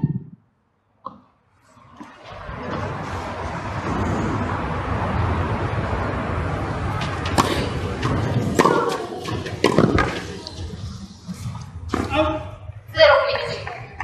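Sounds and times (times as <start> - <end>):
steady rushing background noise: 1.5 - 14.0
tennis ball racket hits: 7.0 - 10.9.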